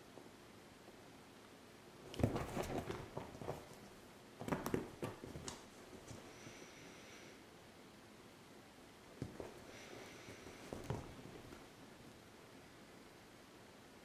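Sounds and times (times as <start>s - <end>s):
kitten claws scrabbling on leather: 2.1s - 3.8s, 4.4s - 6.2s.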